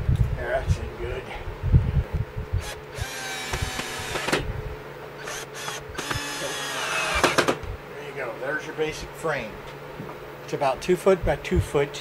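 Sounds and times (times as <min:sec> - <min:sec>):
cordless drill driving screws: 0:02.6 - 0:04.4, 0:05.2 - 0:07.6.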